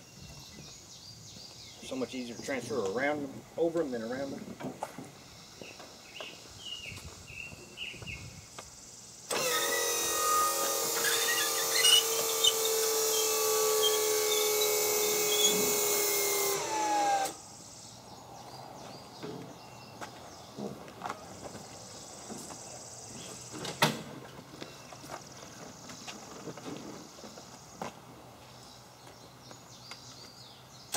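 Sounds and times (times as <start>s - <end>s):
seat lift motor whining: 9.3s - 17.4s.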